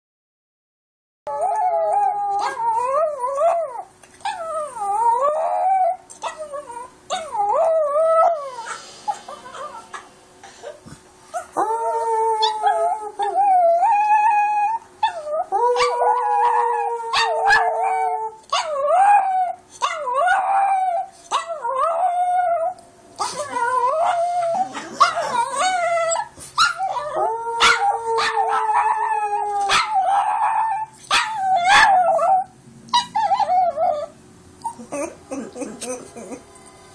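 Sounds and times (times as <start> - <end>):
small dog howling and yipping: 1.3 - 10.0, 11.3 - 35.4.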